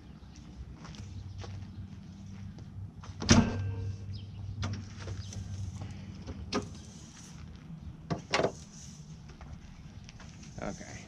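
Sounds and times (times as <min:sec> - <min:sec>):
hood latch metallic clank: 0:03.2 - 0:03.9.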